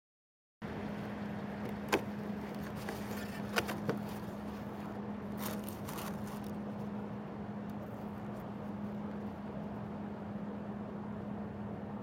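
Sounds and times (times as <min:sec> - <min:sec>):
steady low hum: 0:00.6 - 0:12.0.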